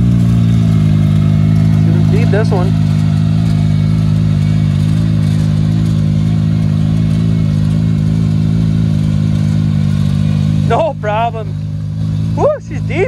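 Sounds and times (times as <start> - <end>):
utility vehicle engine idling: 0.0 - 13.0.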